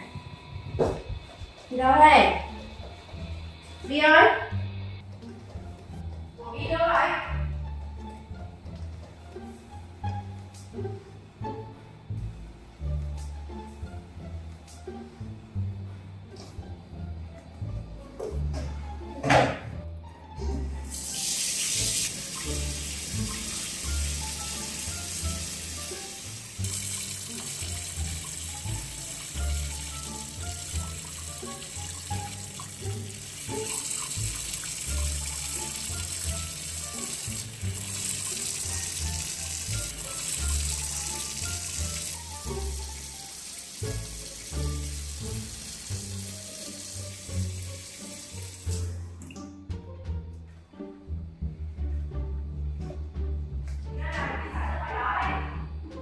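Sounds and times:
water running from a tap: 20.8 - 49.4
background music with bass line: 21.8 - 56.0.

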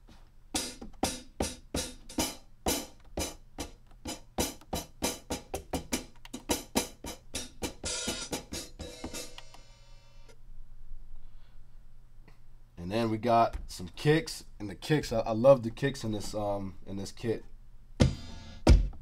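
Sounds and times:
crisp hi-hat hits: 0.6 - 10.4
ringing hi-hat hit: 6.5 - 10.3.

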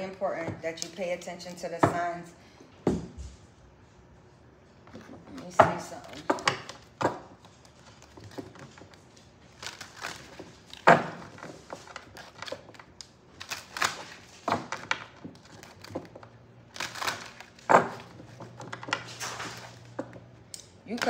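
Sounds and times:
cards rustling and scraping: 4.6 - 21.0.

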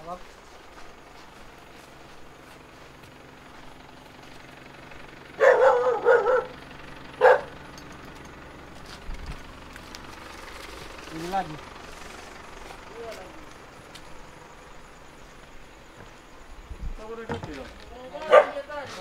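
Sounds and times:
dog barking: 5.4 - 6.6, 7.2 - 7.6, 18.2 - 18.7.

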